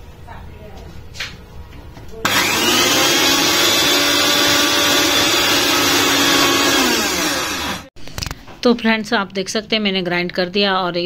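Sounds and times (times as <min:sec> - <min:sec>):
mixer grinder motor whine: 0:02.2 - 0:07.9.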